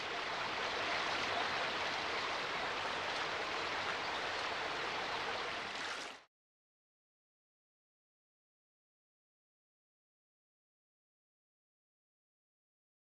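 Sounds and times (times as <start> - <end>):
water rushing over rocks: 0.0 - 6.3.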